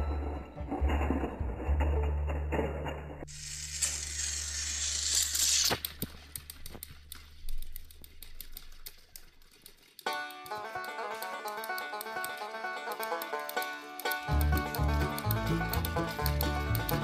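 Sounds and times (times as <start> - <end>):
toy train motor whir: 3.3 - 12.4, 13.0 - 17.0
plastic clicking and rattling: 5.8 - 17.0.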